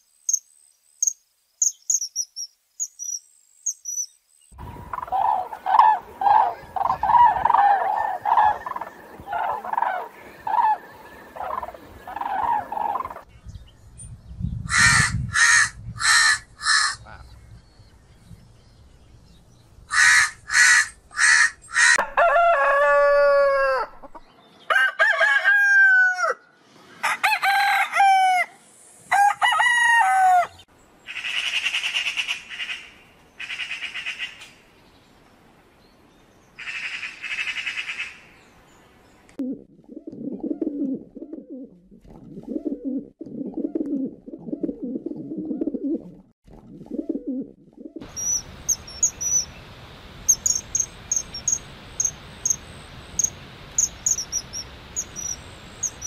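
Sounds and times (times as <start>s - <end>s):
insect trill: 0.0s - 5.4s, 48.0s - 56.0s
high bird chirps: 1.0s - 4.9s, 48.1s - 56.0s
crow cawing: 14.7s - 17.0s, 19.9s - 22.0s
low pulsed bird calls: 46.9s - 56.0s.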